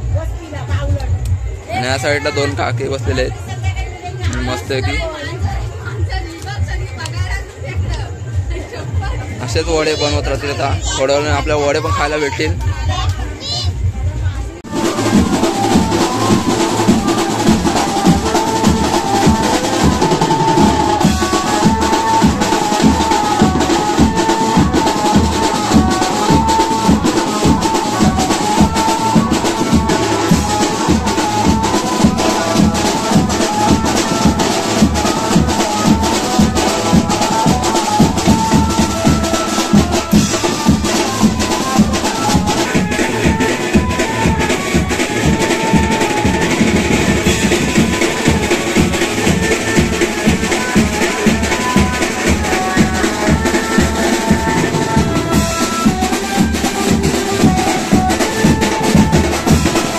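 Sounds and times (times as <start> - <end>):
music with fast drum beat: 0.0 - 59.9.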